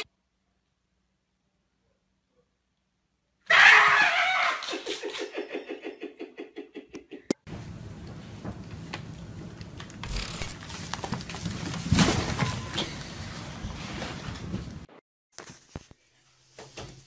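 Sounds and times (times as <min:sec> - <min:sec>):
person yelling: 0:03.5 - 0:04.7
laughter: 0:04.2 - 0:07.4.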